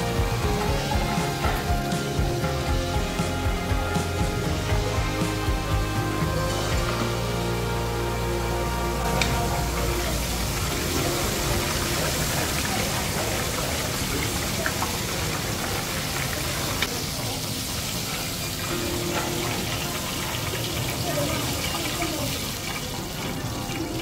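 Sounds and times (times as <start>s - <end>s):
food sizzling in hot oil: 0.0s - 24.0s.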